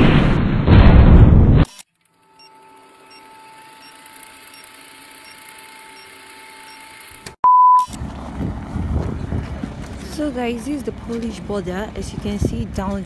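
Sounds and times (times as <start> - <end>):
outdoor background noise: 3.8 - 13.0
loud beep: 7.4 - 8.0.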